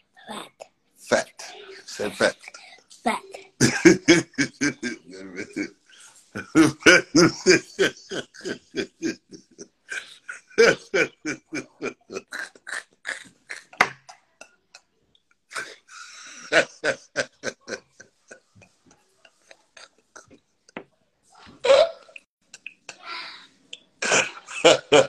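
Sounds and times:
man laughing hard: 3.6s - 5.7s, 6.4s - 12.5s, 16.3s - 18.0s, 24.2s - 25.0s.

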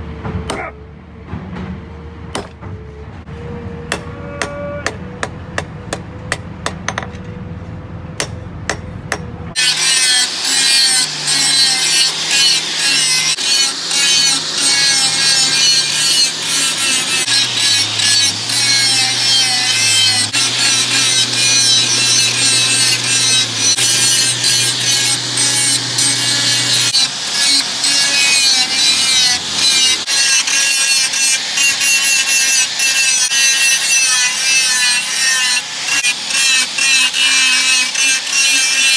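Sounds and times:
angle grinder grinding metal: 9.5s - 38.9s.

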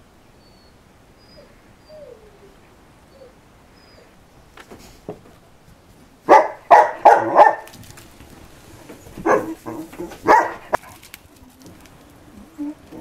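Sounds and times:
dog barking: 6.3s - 7.7s, 9.2s - 11.0s.

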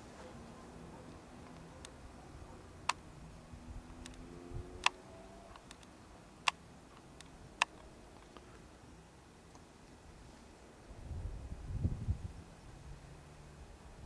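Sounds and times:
steady low hiss: 0.0s - 14.0s
sharp clicks: 4.0s - 8.5s.

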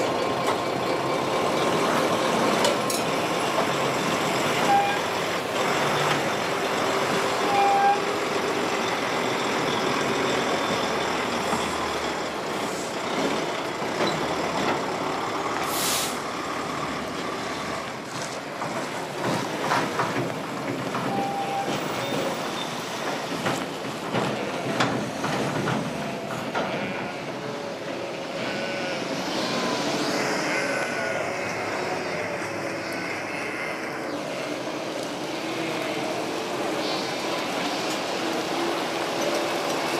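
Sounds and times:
heavy diesel vehicles running: 0.0s - 39.9s
short beeps: 4.7s - 5.1s
air brake hiss: 15.6s - 16.3s.

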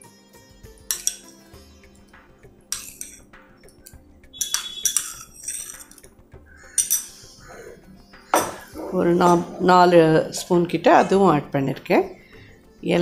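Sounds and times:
metal spoon clinking against vessel: 0.8s - 1.6s, 2.7s - 6.1s, 6.7s - 7.3s, 8.4s - 9.6s.

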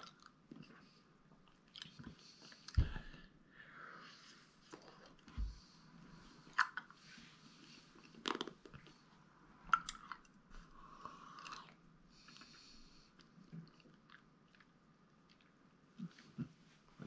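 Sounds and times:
crunching mouth clicks: 9.7s - 10.3s.

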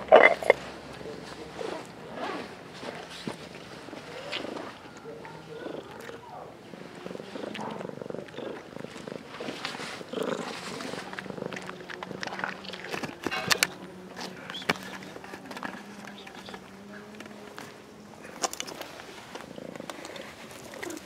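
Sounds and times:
cat crunching dry kibble: 0.0s - 21.0s
cat purring rumble: 0.0s - 21.0s.

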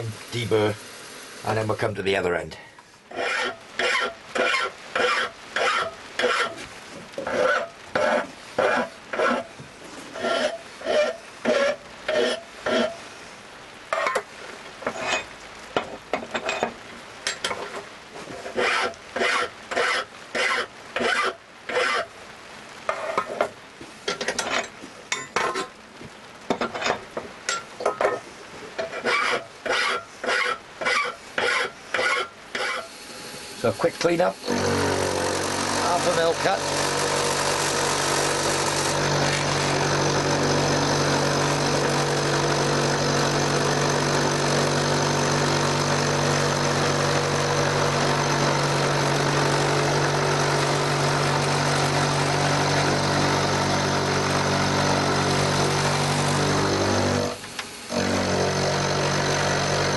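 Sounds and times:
hand file rasping on steel: 3.1s - 6.6s, 7.2s - 9.5s, 10.2s - 13.0s, 18.5s - 22.1s, 28.9s - 32.9s.

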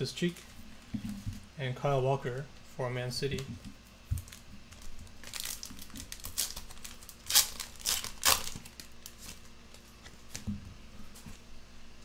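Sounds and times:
foil wrapper crinkling: 4.2s - 10.4s.

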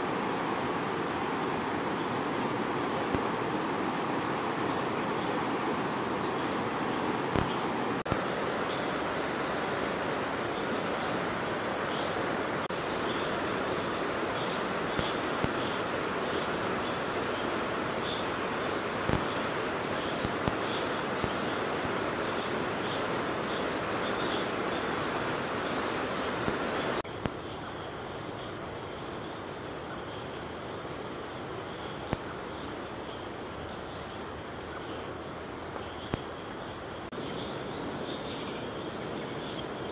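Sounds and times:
river flowing: 0.0s - 27.0s
pulsing insect trill: 0.0s - 27.8s.

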